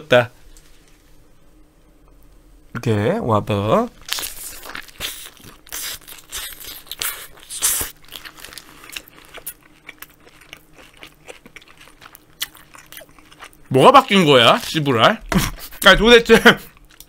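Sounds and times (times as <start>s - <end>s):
person chewing crunchy food: 4.0s - 13.7s, 16.7s - 17.0s.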